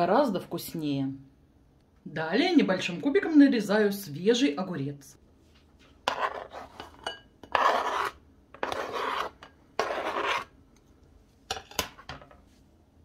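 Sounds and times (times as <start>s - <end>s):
knife scraping a cutting board: 6.0s - 10.5s.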